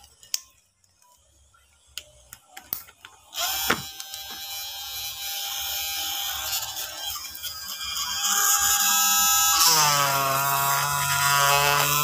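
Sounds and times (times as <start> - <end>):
electric rotary tool running: 3.4 - 12.0.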